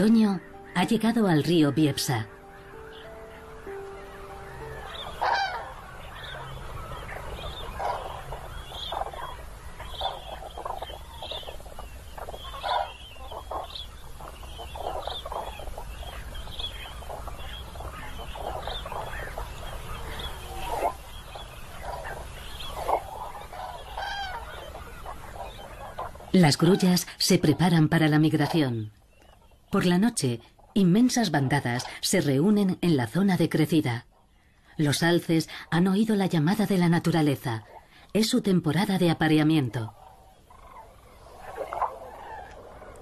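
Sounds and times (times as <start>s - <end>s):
cranes trumpeting calls: 0.0s - 27.0s, 39.3s - 43.0s.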